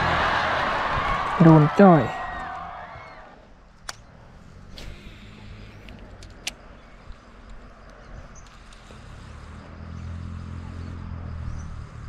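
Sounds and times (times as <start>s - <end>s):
vehicle engine passing by: 0.0s - 1.2s, 8.0s - 12.0s
sharp clicks: 3.7s - 4.1s, 5.8s - 9.7s.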